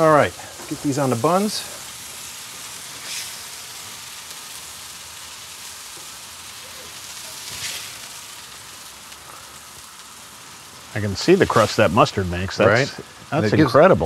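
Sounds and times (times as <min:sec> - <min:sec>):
burger patties sizzling on griddle: 0:00.0 - 0:14.0
metal spatula scraping griddle: 0:07.4 - 0:08.0.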